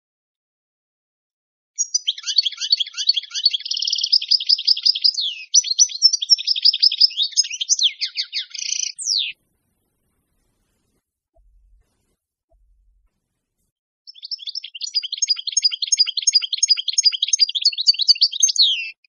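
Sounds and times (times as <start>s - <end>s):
finch singing twittering trills: 1.8s - 9.4s, 14.1s - 19.0s.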